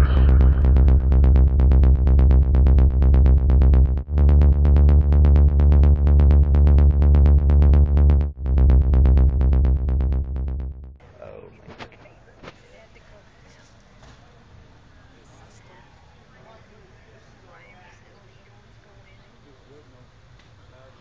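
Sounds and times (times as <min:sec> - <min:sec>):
electronic instrumental beat: 0:00.0 - 0:11.0
heavy bass line: 0:00.0 - 0:11.0.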